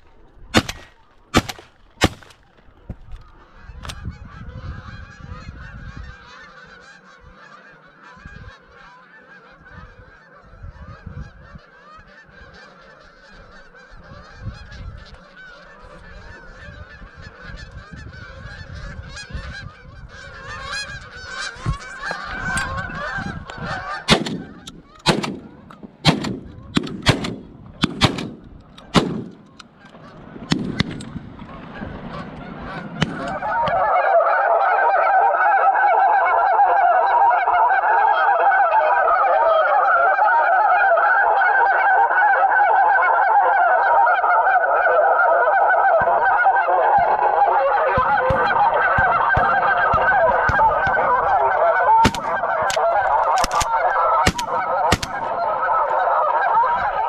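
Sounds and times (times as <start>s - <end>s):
geese honking: 0.0s - 57.0s
shotgun shots: 0.6s - 2.4s, 24.1s - 29.4s, 47.0s - 55.4s.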